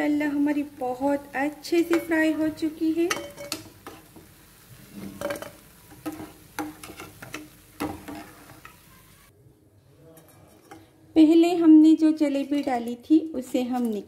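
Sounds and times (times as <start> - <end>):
frying in hot oil sizzle: 0.0 - 9.3
metal spoon scraping pan: 1.8 - 4.3, 4.9 - 8.9, 10.1 - 11.0.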